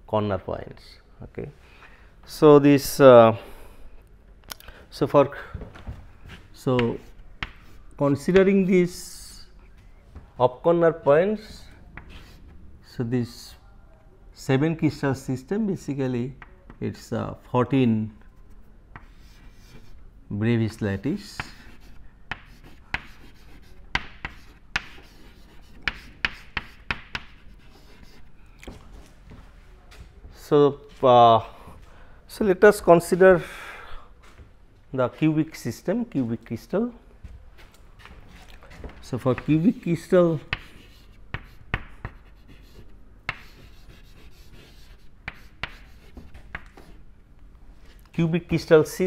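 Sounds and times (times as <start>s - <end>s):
chalk tapping on blackboard: 6.8s - 8.5s, 21.2s - 28.2s, 40.4s - 47.0s
chalk scraping: 11.4s - 12.5s, 18.4s - 20.0s, 21.2s - 28.3s, 39.3s - 47.0s.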